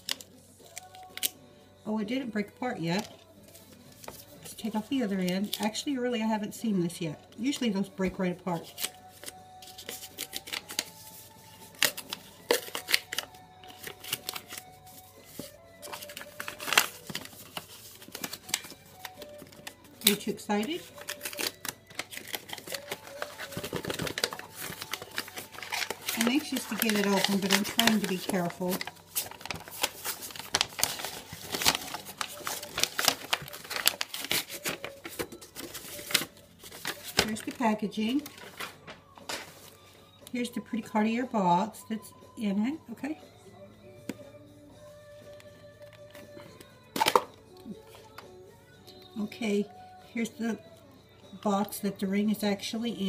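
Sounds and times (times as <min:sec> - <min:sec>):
paper crinkling: 0:08.6 - 0:39.8.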